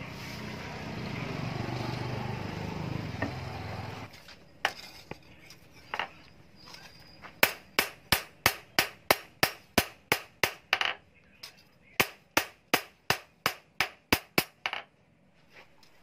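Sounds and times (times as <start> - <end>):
hammer striking steel on anvil: 7.4 - 10.9.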